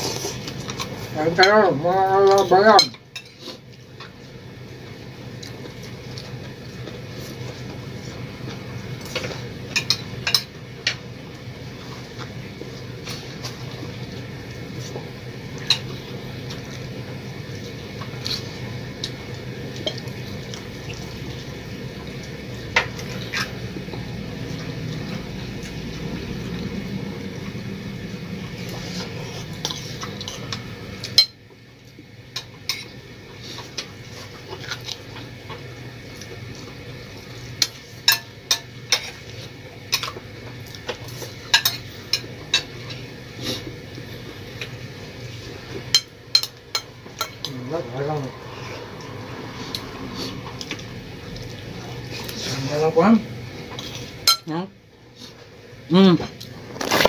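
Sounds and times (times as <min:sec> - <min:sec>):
steady hum: 0:00.0 - 0:57.0
spoons clinking on plates: 0:41.5 - 0:42.7, 0:45.9 - 0:47.5, 0:54.2 - 0:54.5.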